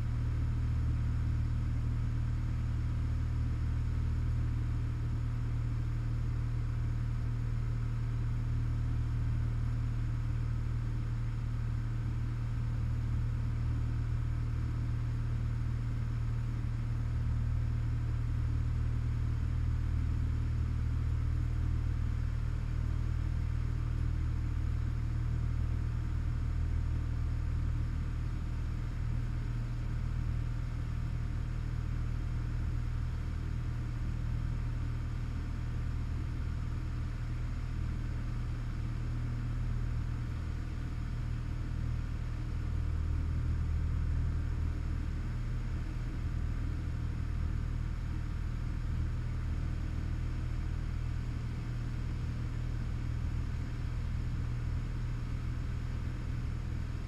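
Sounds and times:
propeller aircraft engine droning: 0.0 - 57.0.

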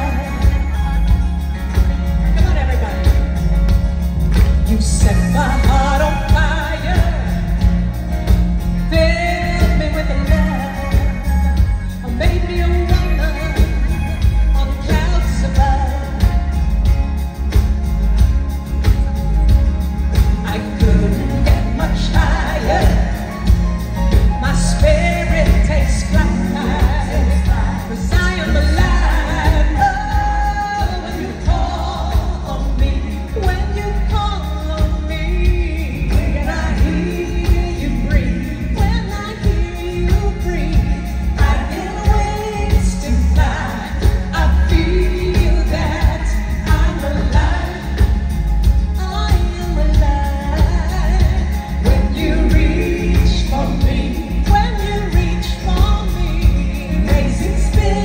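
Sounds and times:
woman singing a pop ballad: 0.0 - 18.3, 20.1 - 58.0
band with drums and guitars: 0.0 - 58.0.

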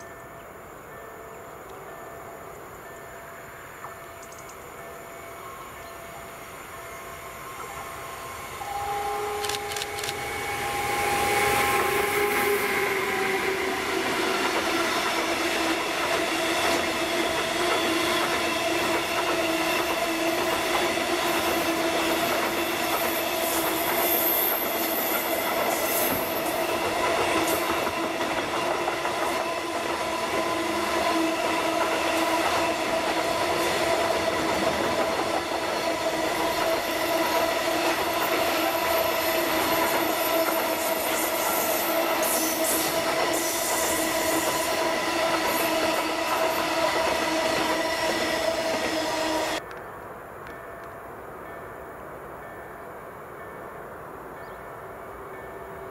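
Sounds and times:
electric locomotive whine: 0.0 - 55.9
train wheels squealing: 3.8 - 34.3, 35.8 - 49.6.

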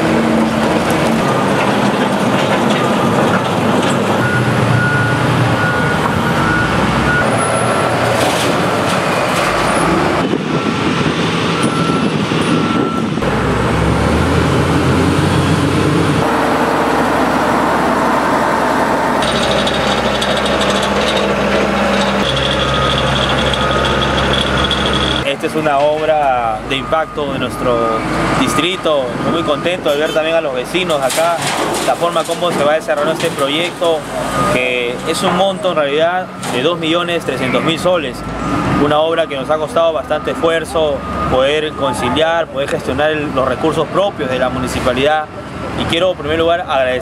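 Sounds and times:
heavy machinery diesel engines: 0.0 - 47.0
reversing alarm beeping: 4.2 - 8.0, 9.7 - 13.2, 16.2 - 31.1, 32.2 - 45.0.

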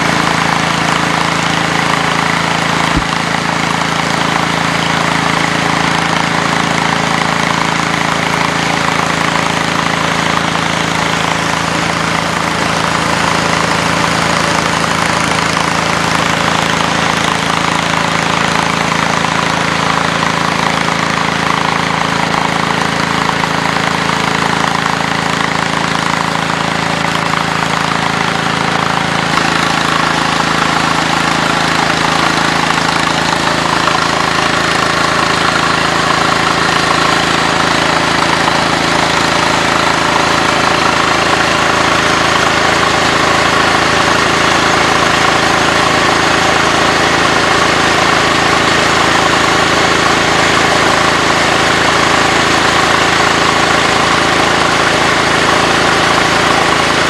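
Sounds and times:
engine running steadily: 0.0 - 57.0
grain rushing through auger: 0.0 - 57.0.

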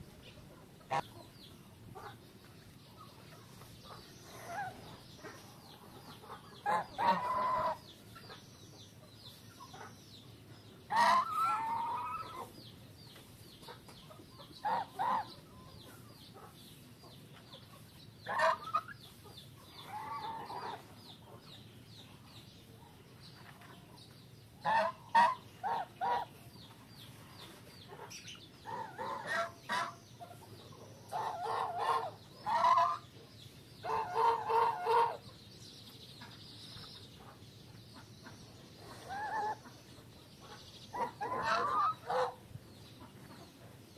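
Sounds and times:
geese honking: 6.6 - 7.8, 10.9 - 12.4, 14.6 - 15.3, 18.3 - 19.0, 24.6 - 26.3, 28.7 - 30.0, 31.1 - 33.0, 33.8 - 35.2, 41.0 - 42.4.

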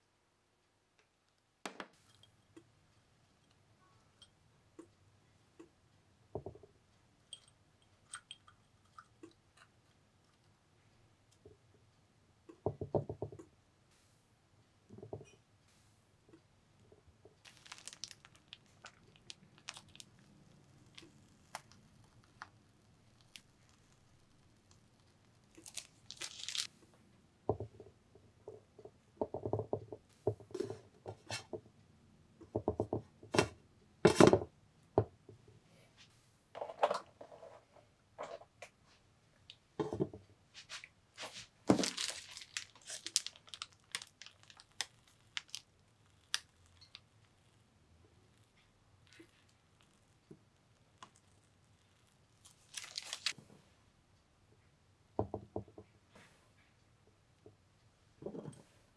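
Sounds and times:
crisp snaps and crackling: 17.4 - 26.7, 41.7 - 47.6, 48.3 - 53.4.

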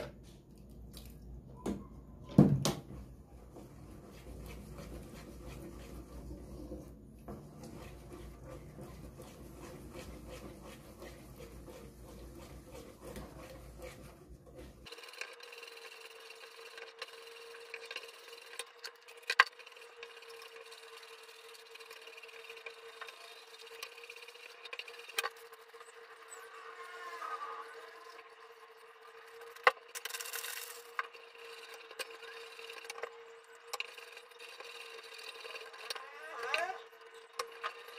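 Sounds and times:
wooden spoon stirring paste in pot: 3.2 - 15.0.

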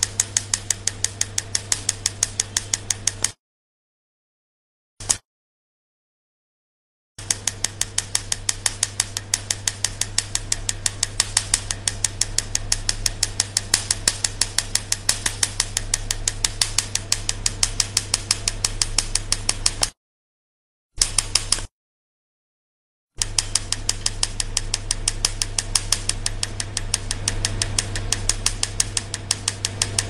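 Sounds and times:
laser snapping clicks: 0.0 - 3.4, 5.0 - 5.2, 7.2 - 20.0, 21.0 - 21.7, 23.2 - 30.0
steady low hum: 0.0 - 3.4, 7.2 - 19.9, 23.2 - 30.0.

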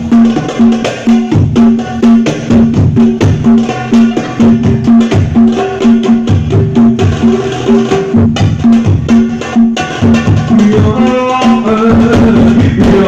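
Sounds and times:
hand drums playing fast rhythm: 0.0 - 13.0.

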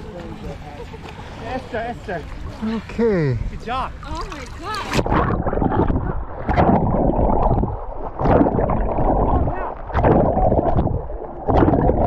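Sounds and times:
water splashing from swimming: 0.0 - 12.0
muffled underwater sound: 4.6 - 12.0.

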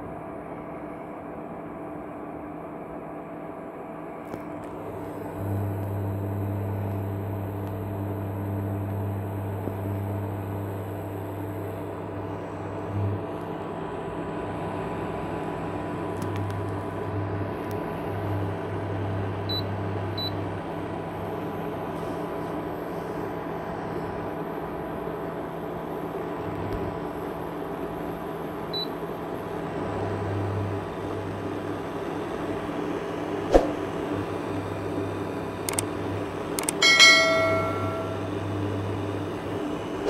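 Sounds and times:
deeper electrical hum: 0.0 - 40.0
induction cooktop whir and hum: 0.0 - 40.0
sharp click: 36.6 - 36.8.

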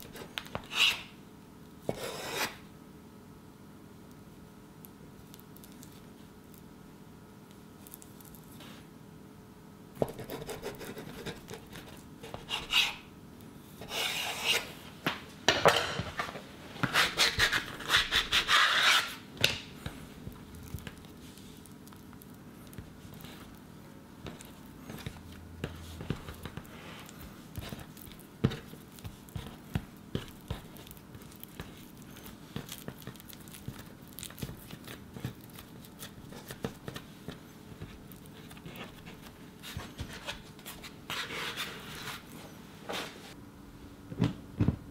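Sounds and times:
soft rubbing and light taps of dough: 24.2 - 41.0.

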